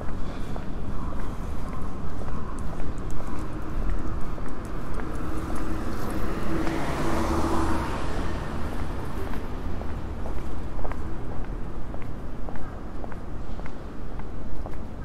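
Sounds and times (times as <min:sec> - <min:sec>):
car passing by: 0:05.1 - 0:10.2.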